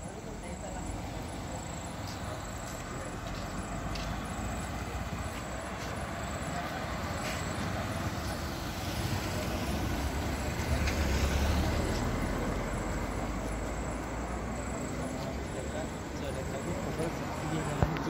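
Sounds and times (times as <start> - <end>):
car passing by: 0.4 - 18.0.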